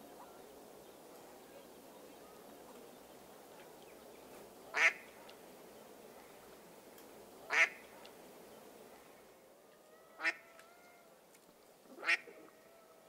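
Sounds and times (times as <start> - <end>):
faint outdoor background: 0.0 - 13.0
duck quacks: 4.7 - 5.1, 7.5 - 7.8, 12.0 - 12.4.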